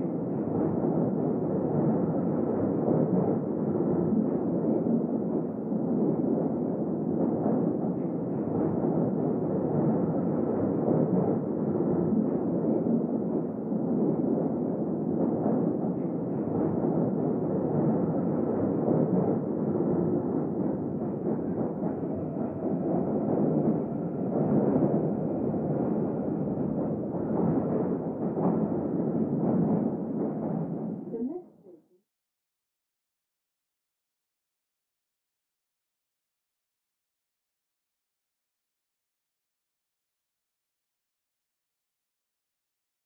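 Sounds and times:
underground train rumble: 0:00.0 - 0:31.4.

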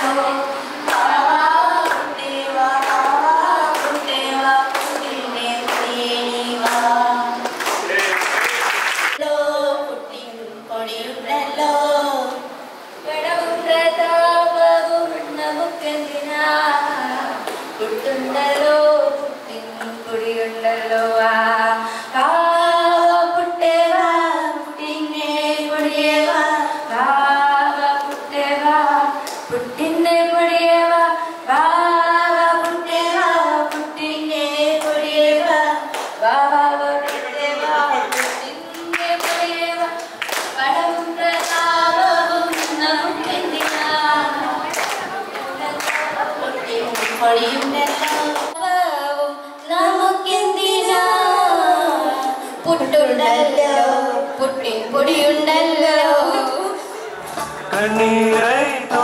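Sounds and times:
women singing unaccompanied: 0:00.0 - 0:07.8, 0:09.1 - 0:57.0
rhythmic hand claps: 0:00.8 - 0:09.2, 0:29.2 - 0:29.6, 0:32.6 - 0:34.0, 0:34.7 - 0:35.2, 0:35.8 - 0:36.2, 0:38.1 - 0:48.6.

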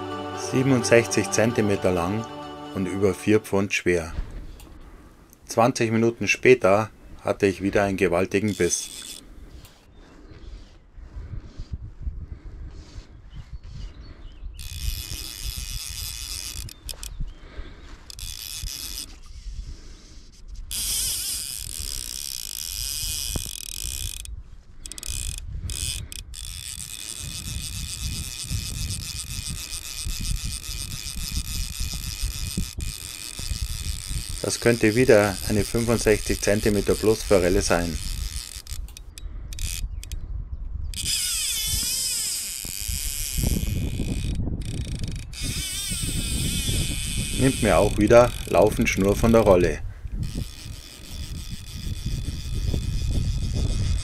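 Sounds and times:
fly reel ratchet clicking: 0:08.4 - 0:09.8, 0:14.6 - 0:17.2, 0:18.0 - 0:19.6, 0:20.7 - 0:40.2, 0:40.9 - 0:54.0.

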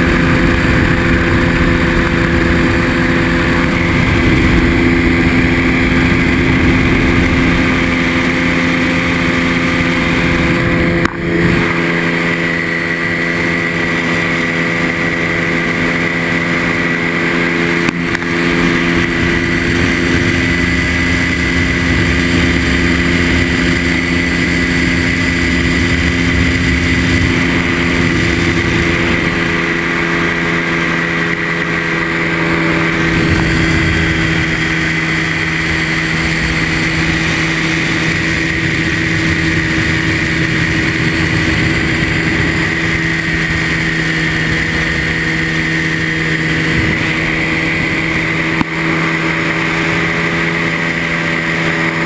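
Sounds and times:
ultralight engine droning: 0:00.0 - 0:52.0
wind rushing over microphone: 0:00.0 - 0:52.0.

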